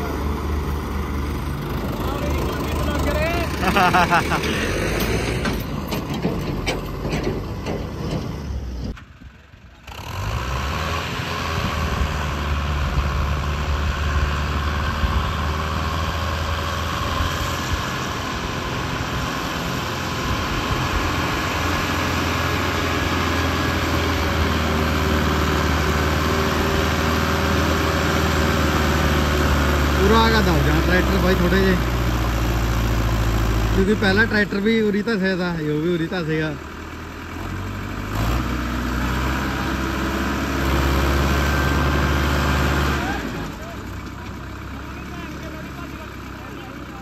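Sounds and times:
tractor diesel engine running: 0.0s - 47.0s.

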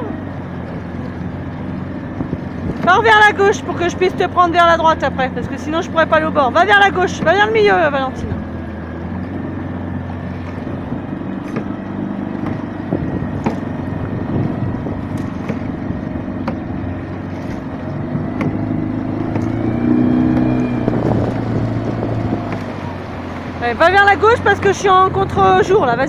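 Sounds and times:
light water splashes: 0.0s - 26.0s
small outboard motor running: 0.0s - 26.0s
water washing past hull: 0.0s - 26.0s.

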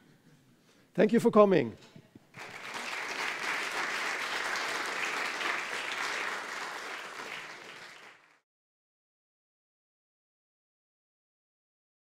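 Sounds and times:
audience applauding: 2.4s - 8.4s.

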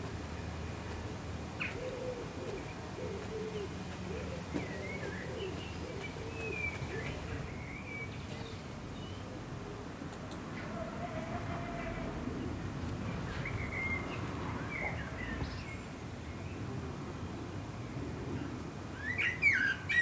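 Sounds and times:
birds warbling: 1.5s - 9.4s
birds with short low calls: 1.6s - 9.4s.

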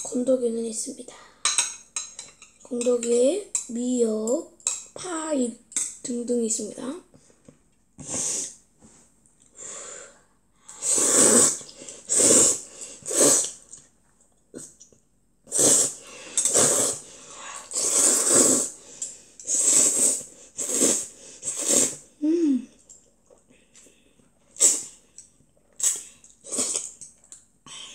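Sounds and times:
child slurping noodles: 8.0s - 8.6s, 10.7s - 13.8s, 15.5s - 22.6s, 24.5s - 25.0s, 25.8s - 27.0s.

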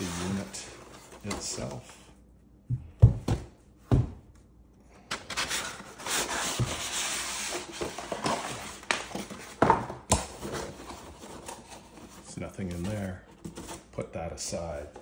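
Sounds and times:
paper and cardboard rustling: 0.0s - 2.1s, 5.1s - 14.0s.

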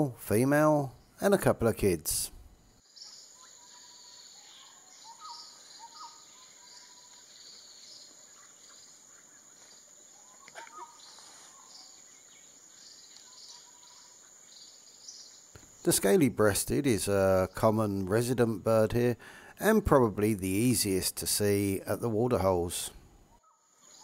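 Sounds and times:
insect drone: 0.8s - 19.6s
short bird calls: 3.0s - 15.8s.

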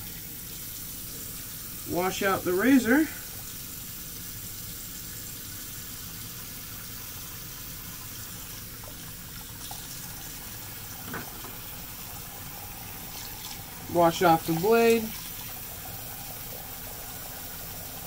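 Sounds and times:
tap running into sink: 11.0s - 11.7s.

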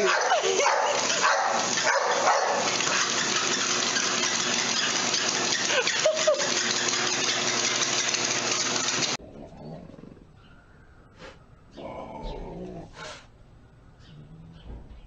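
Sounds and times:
treadmill whirring: 0.0s - 9.2s.

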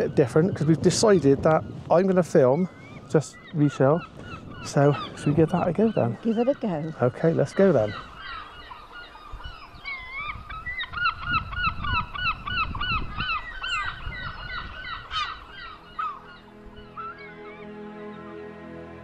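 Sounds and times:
wind rumbling on microphone: 0.0s - 17.0s
geese honking: 2.0s - 11.2s, 13.6s - 19.0s
soft music: 14.8s - 19.0s.

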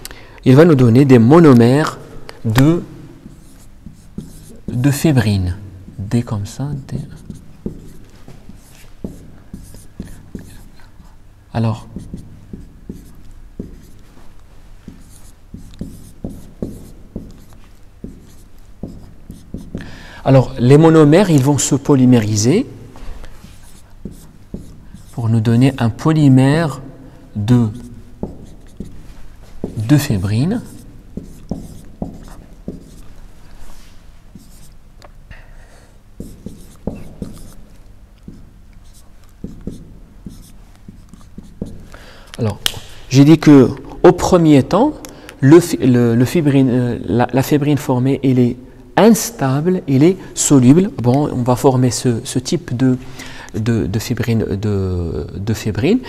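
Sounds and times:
marker scratching on whiteboard: 3.2s - 5.2s, 5.9s - 14.2s, 14.8s - 19.9s, 23.3s - 25.8s, 27.6s - 34.8s, 36.2s - 42.5s
marker tip tapping on whiteboard: 7.3s - 7.9s, 8.5s - 10.5s, 11.9s - 13.9s, 14.9s - 19.9s, 28.2s - 29.0s, 31.2s - 33.1s, 36.2s - 37.6s, 38.2s - 38.5s, 39.4s - 41.8s.

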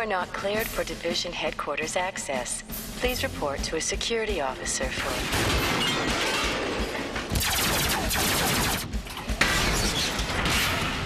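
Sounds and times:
cartoon laser blaster fire: 7.4s - 8.9s.

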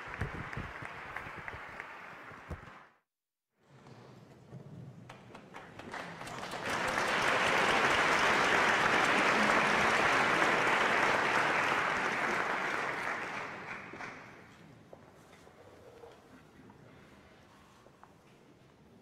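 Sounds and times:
audience applauding: 0.0s - 3.0s, 5.4s - 14.6s.

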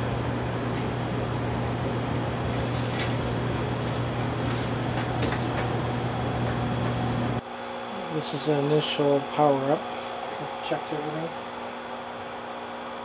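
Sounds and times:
background hum and hiss: 0.0s - 13.0s
wiring harness rustling and clicking: 2.4s - 5.8s.

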